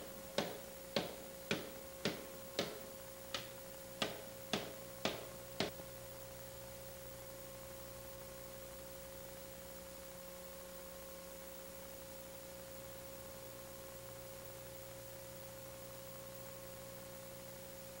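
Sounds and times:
electrical hum and hiss: 0.0s - 18.0s
sharp tap: 0.4s - 5.8s.

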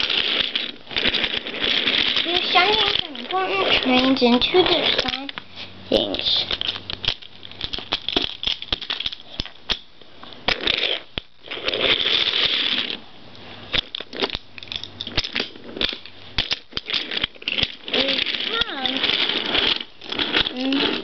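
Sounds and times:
plastic toy clicks and knocks: 0.0s - 5.4s, 6.4s - 9.9s, 13.7s - 21.0s
scraping and rustling: 0.0s - 21.0s.

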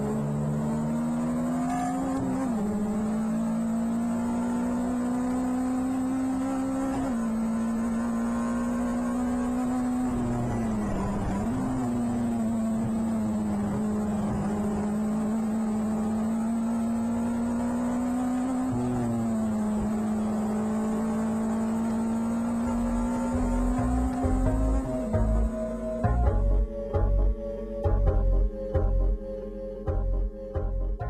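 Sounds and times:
race car engine at high revs: 0.0s - 26.1s.

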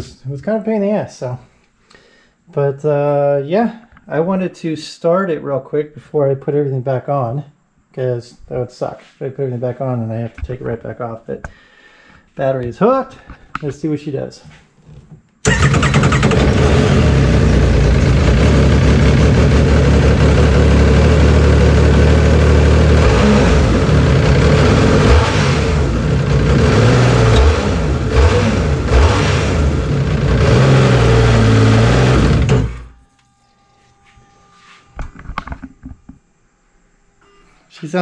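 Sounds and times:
personal watercraft engine revving: 15.4s - 32.8s.

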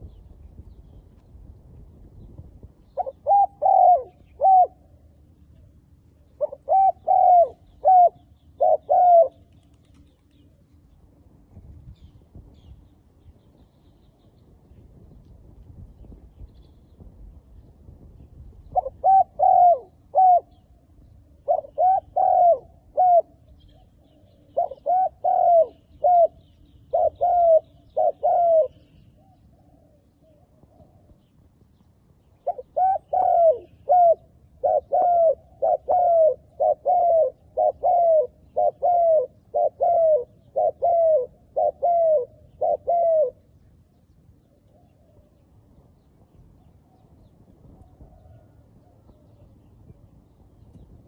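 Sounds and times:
dove cooing: 2.9s - 10.6s, 18.6s - 31.3s, 32.4s - 43.6s.

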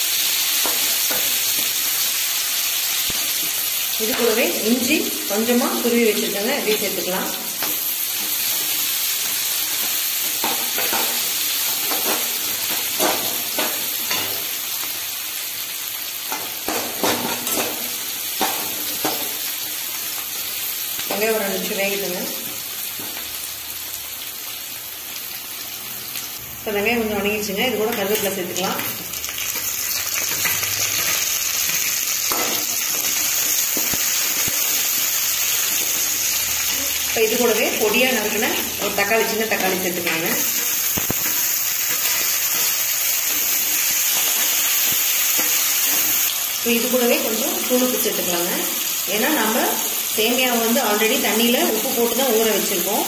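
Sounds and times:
food sizzling in hot oil: 0.0s - 53.0s
spatula stirring and clicking on pan: 7.6s - 14.5s, 27.9s - 36.3s.

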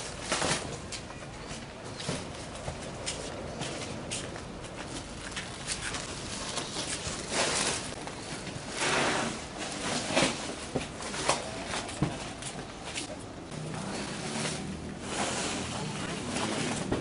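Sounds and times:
plastic sheeting rustling: 5.3s - 8.0s.

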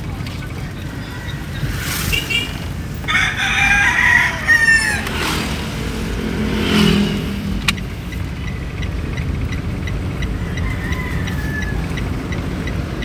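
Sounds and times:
rooster crowing: 3.0s - 6.0s, 10.3s - 12.2s.

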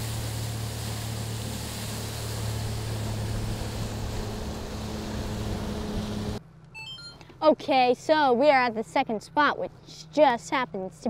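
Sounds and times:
outboard motor drone: 0.0s - 6.4s
wind and water rushing: 0.0s - 6.4s.

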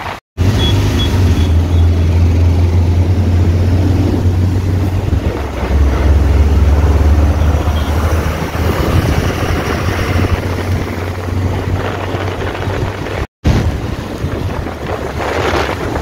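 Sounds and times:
wind noise on microphone: 0.4s - 16.0s.

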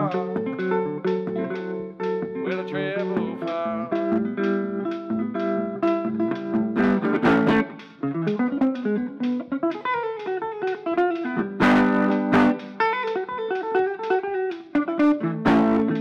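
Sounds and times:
solo guitar playing: 0.0s - 16.0s.

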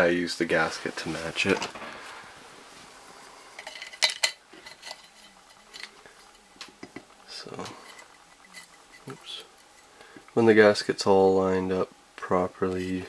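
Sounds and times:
metal parts clinking: 3.6s - 5.9s.

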